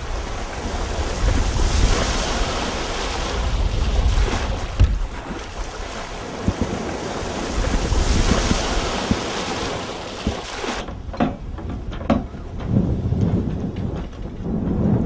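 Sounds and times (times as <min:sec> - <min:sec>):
sea waves rushing: 0:00.0 - 0:15.0
wind buffeting microphone: 0:00.0 - 0:15.0
short knocks: 0:10.2 - 0:14.3.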